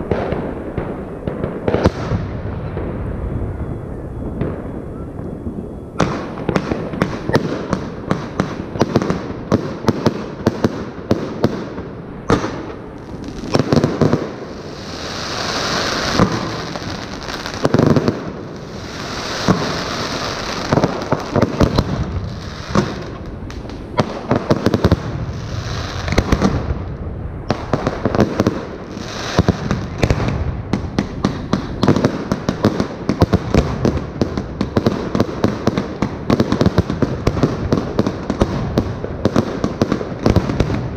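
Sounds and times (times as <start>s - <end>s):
fireworks bangs: 0.0s - 40.9s
fireworks crackling: 0.0s - 40.9s
fireworks hissing: 12.2s - 26.6s, 28.6s - 33.8s.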